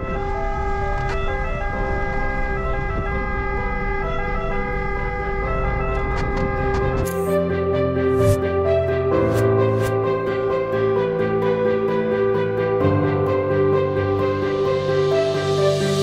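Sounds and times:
ambulance siren: 0.0 - 8.4
music: 0.0 - 16.0.

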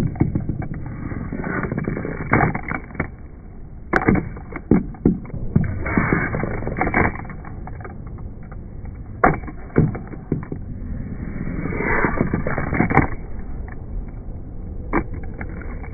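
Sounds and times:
toy skateboard wheels rolling: 0.0 - 15.9
skateboard clacking on table: 3.9 - 7.9, 9.1 - 10.7.

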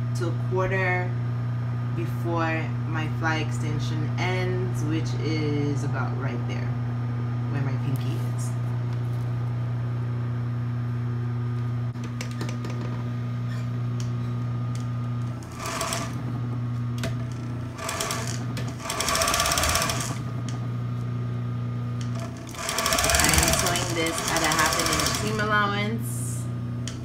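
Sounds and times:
low motor hum: 0.0 - 27.0
sewing machine stitching: 15.4 - 16.2, 17.2 - 20.2, 22.0 - 25.6.

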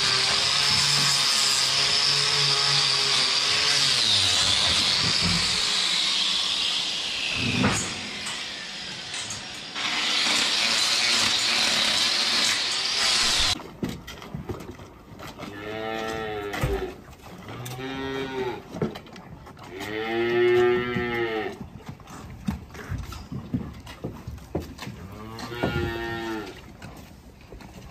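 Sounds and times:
electric grinder whine: 0.0 - 13.6
cattle mooing: 15.5 - 18.6, 25.0 - 26.6.

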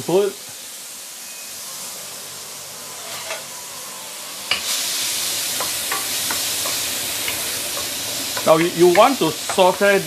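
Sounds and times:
shallots sizzling in oil: 0.0 - 10.0
spatula tapping against wok: 5.6 - 9.8.

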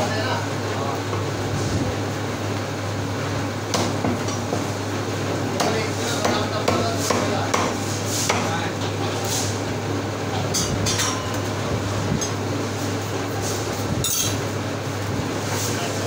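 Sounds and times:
steady low hum: 0.0 - 16.0
cleaver chopping meat on wood: 5.6 - 8.5.

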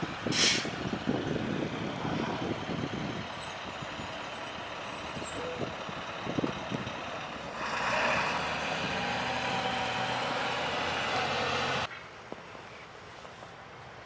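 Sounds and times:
traffic engines and tyres on snow: 0.0 - 14.0
passing vehicle engine hum: 0.8 - 11.9.

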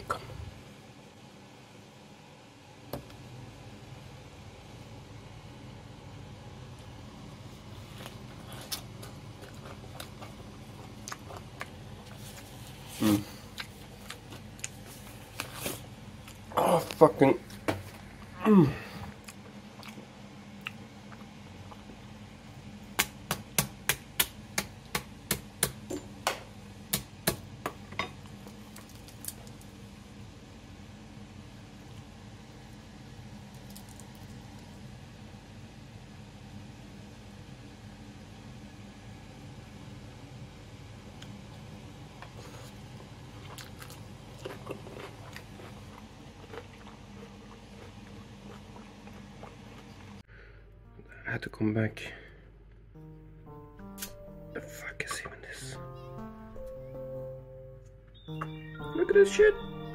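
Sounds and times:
faint low hum: 0.0 - 59.9
person chewing crunchy food: 7.8 - 17.0, 19.0 - 22.0, 42.2 - 50.3.

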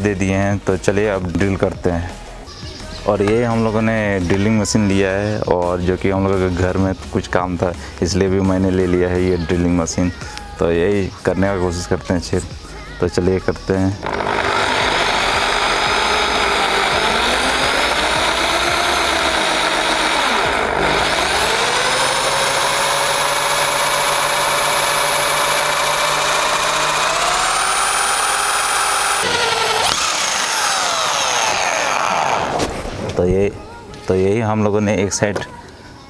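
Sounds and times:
electric drill boring through metal: 14.0 - 32.8.

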